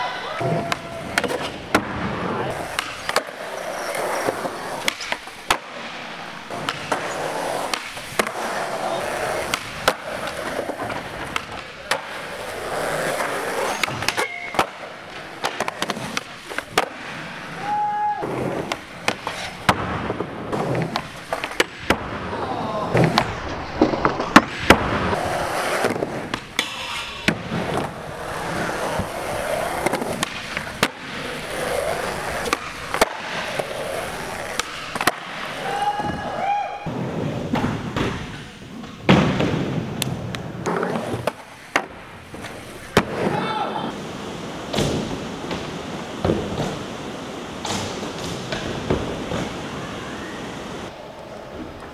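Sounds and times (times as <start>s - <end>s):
skateboard wheels rolling: 0.0s - 51.9s
skateboard clacks: 0.3s - 36.2s.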